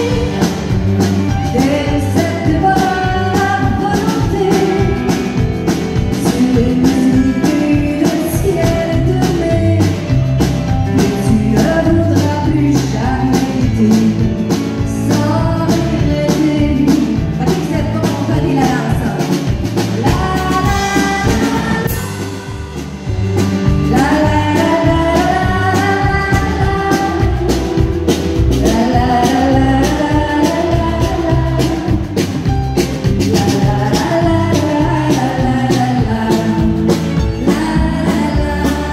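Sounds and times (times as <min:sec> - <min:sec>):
bass guitar: 0:00.0 - 0:38.9
drum kit beat: 0:00.0 - 0:38.9
electric guitar: 0:00.0 - 0:38.9
woman singing: 0:00.0 - 0:38.9.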